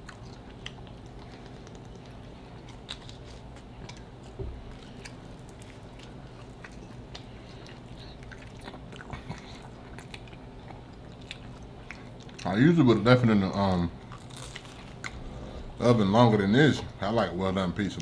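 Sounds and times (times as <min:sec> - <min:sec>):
chewing and mouth smacks: 0:00.0 - 0:12.6, 0:14.0 - 0:15.3.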